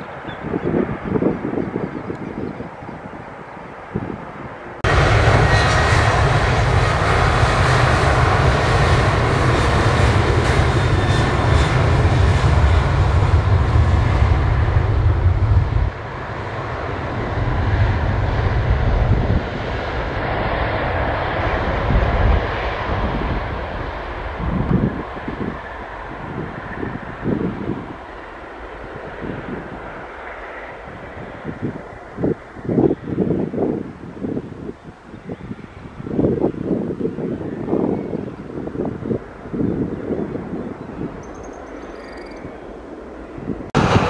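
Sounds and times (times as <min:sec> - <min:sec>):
jet engines rumbling: 0:00.0 - 0:44.0.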